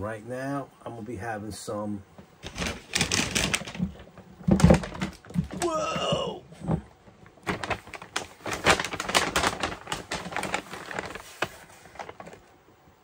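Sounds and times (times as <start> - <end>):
paper bag rustling and crinkling: 2.4 - 12.6.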